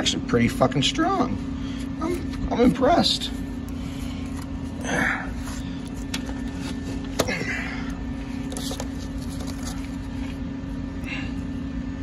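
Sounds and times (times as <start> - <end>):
low machine hum: 0.0 - 12.0
rustles and scrapes: 8.3 - 10.4.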